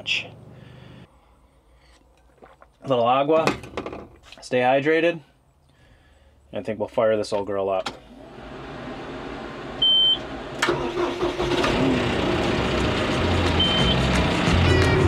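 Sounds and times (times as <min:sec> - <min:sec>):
tractor diesel engine running: 0:08.2 - 0:15.0
short high beep: 0:13.6 - 0:14.0.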